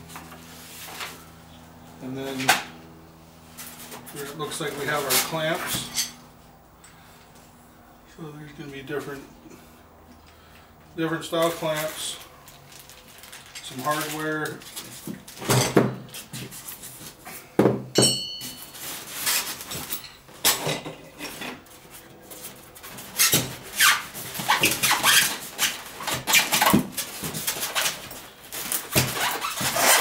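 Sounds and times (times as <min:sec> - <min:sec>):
hardware knocks and clinks: 0:17.6 - 0:18.8.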